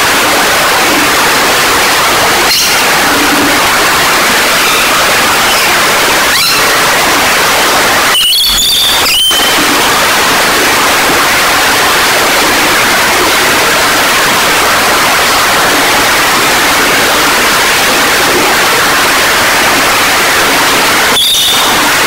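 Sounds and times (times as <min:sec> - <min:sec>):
loud rushing hiss: 0:00.0 - 0:22.0
lorikeet screech: 0:02.5 - 0:02.9, 0:04.6 - 0:06.7, 0:08.1 - 0:09.6, 0:21.2 - 0:21.8.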